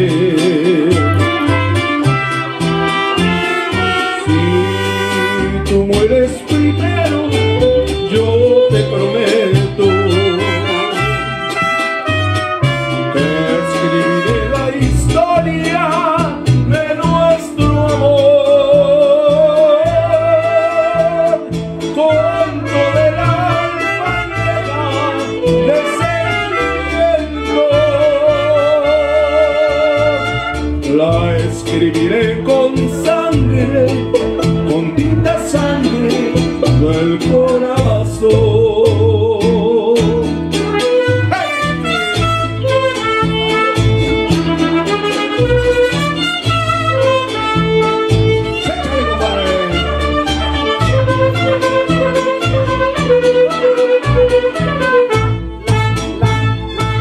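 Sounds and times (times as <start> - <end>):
deep plucked bass: 0.0 - 57.0
mariachi ensemble playing: 0.0 - 57.0
strummed guitars: 0.0 - 57.0
violins with vibrato: 7.3 - 14.8, 40.6 - 57.0.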